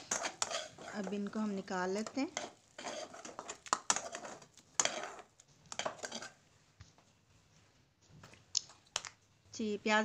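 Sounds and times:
metal spatula scraping a metal pan: 0.0s - 6.5s.

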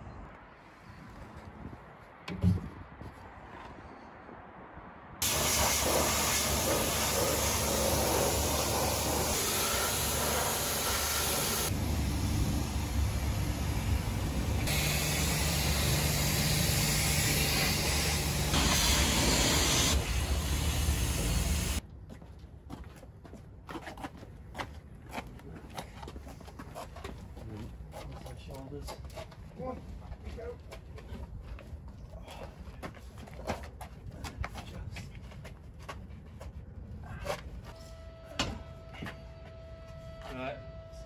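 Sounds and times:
pressure washer water spray: 5.2s - 21.8s.

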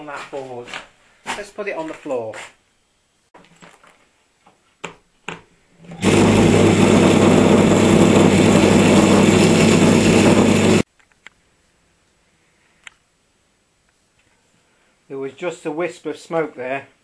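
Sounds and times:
electric motor humming buzz: 5.9s - 10.8s.

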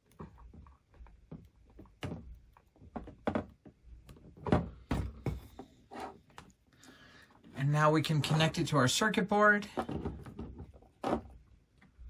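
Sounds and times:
plastic parts clicking and knocking: 0.0s - 6.5s, 9.7s - 12.0s.

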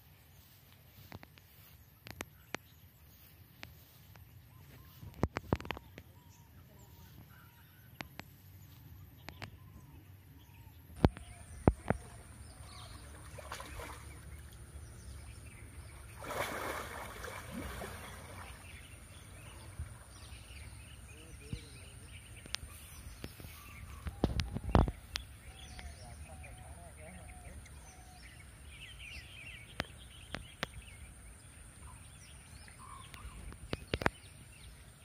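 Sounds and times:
faint bird chirps: 0.3s - 35.0s
water sloshing and splashing: 11.6s - 20.4s.

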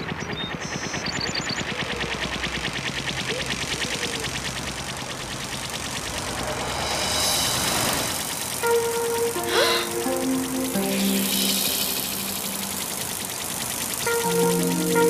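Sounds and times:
small motor chugging: 0.0s - 15.0s
rising whoosh: 5.6s - 13.3s.

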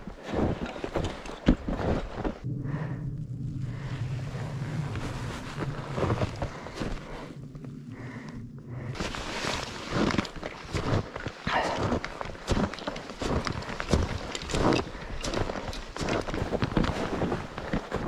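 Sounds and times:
footsteps crunching in snow: 0.0s - 2.4s, 4.3s - 7.4s, 8.9s - 18.0s
low steady hum: 0.4s - 18.0s.

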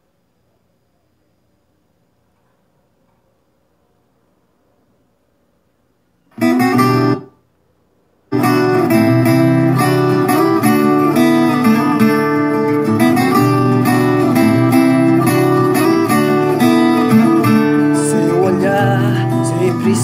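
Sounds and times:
acoustic guitar music: 6.2s - 7.4s, 8.3s - 20.0s.

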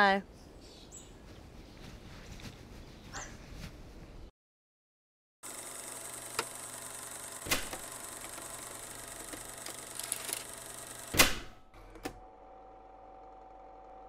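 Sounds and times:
steady background hum: 5.5s - 14.0s.

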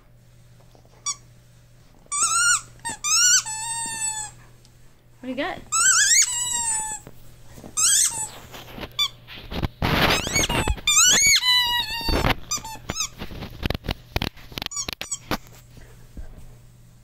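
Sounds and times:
squeaky dog toy squeaking: 2.1s - 4.3s, 5.7s - 7.0s, 7.8s - 8.4s, 10.2s - 13.2s, 14.7s - 15.2s.

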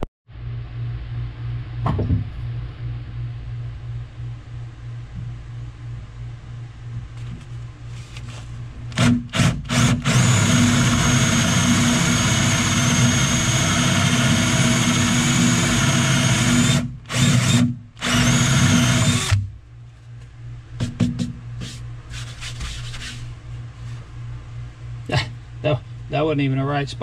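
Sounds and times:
cordless drill whining: 8.9s - 19.4s.

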